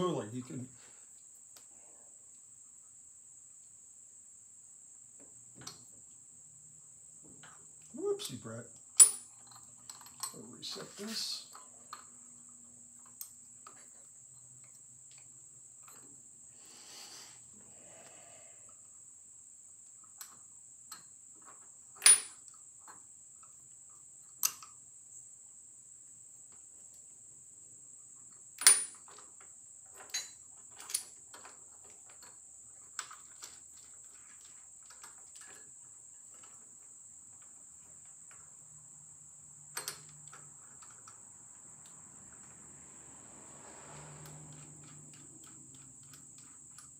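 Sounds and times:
metal clicks and clinks: 9.0 - 12.2, 20.1 - 23.5, 28.6 - 36.6, 39.7 - 41.2, 44.2 - 46.9.

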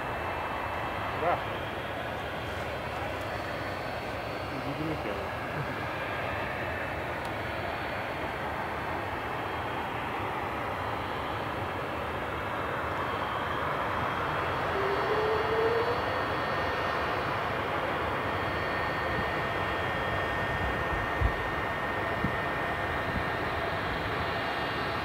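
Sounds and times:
turboprop engines droning: 0.0 - 25.0
brief rising tone: 14.6 - 16.2.

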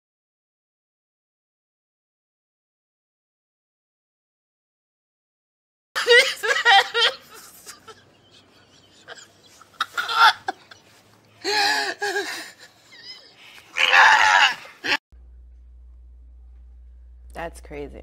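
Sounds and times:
man sobbing and wailing: 6.0 - 15.0.

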